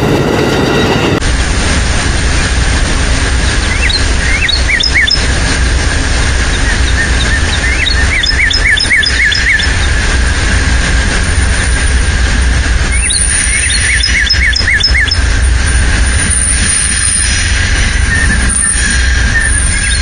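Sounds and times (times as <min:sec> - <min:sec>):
steady low rumble: 0:01.1 - 0:20.0
songbird chirping: 0:03.7 - 0:05.2, 0:06.7 - 0:09.9, 0:13.5 - 0:15.2.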